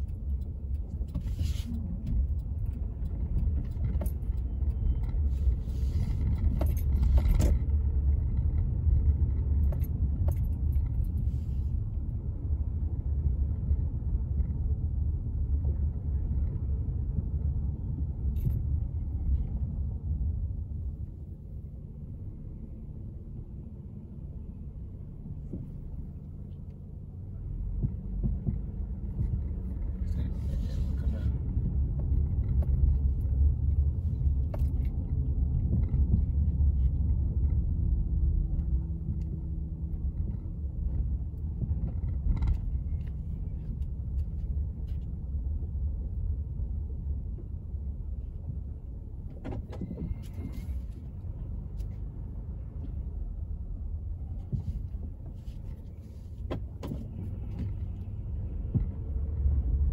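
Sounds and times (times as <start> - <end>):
light clicks and rattles: 0.0 - 12.0
car engine and tyre rumble: 0.0 - 59.9.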